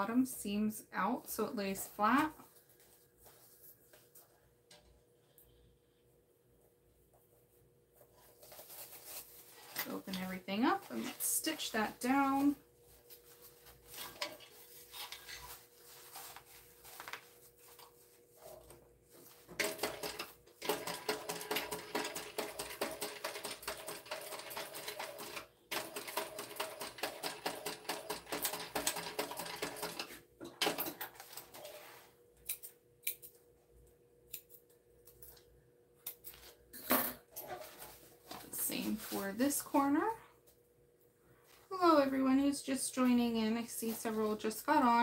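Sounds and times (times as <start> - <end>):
faint steady hum: 0.0 - 20.6
sewing machine clattering: 19.6 - 31.1.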